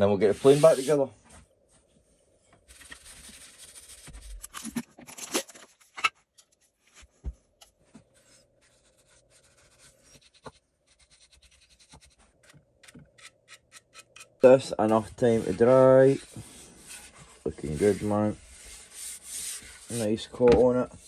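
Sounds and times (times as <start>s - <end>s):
hands rubbing wood: 0.2s - 1.0s, 14.8s - 20.8s
light scraping: 14.4s - 20.9s.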